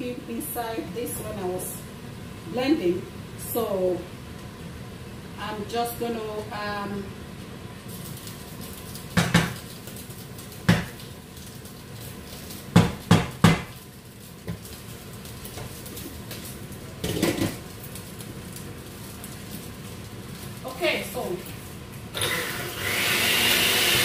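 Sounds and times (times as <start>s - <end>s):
pots and utensils clinking: 17.0s - 17.7s.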